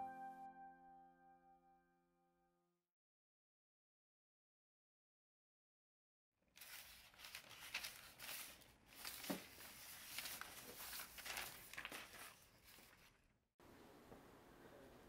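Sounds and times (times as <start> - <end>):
paper sheets rustling: 6.5 - 13.3.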